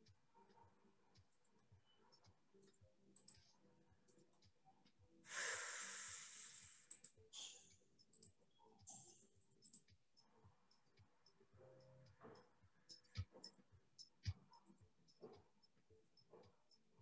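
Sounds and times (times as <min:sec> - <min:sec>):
faint mouse clicks: 0:06.6 - 0:16.8.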